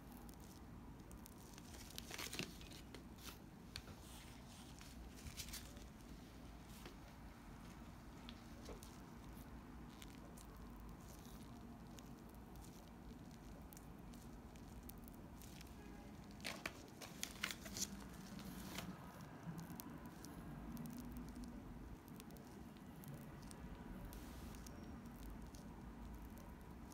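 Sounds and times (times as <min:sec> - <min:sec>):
plastic piping bag crinkling: 0:00.0 - 0:06.1, 0:08.1 - 0:26.9
low steady hum: 0:00.0 - 0:26.9
sharp crackles: 0:08.2 - 0:26.9.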